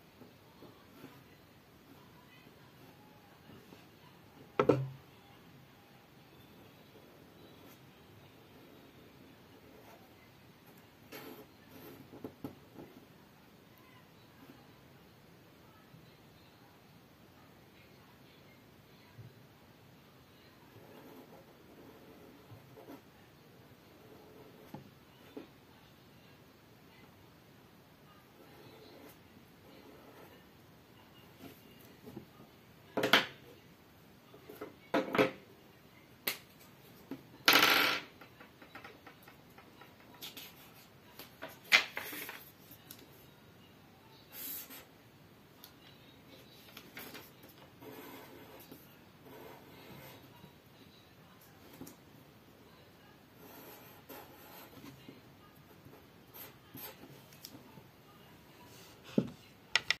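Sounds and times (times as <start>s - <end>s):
marker scratching on paper: 44.3s - 44.9s, 47.8s - 50.3s, 53.4s - 55.0s, 56.3s - 57.3s.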